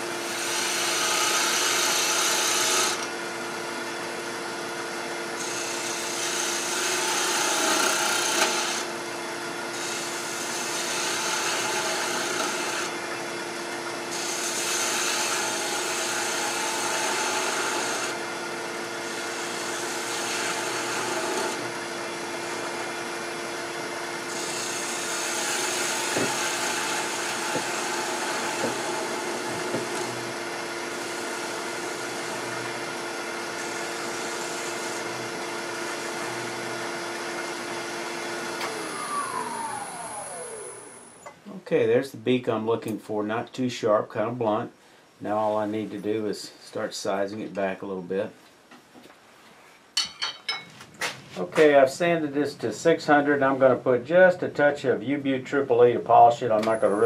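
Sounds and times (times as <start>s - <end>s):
wood lathe humming: 0.0s - 41.2s.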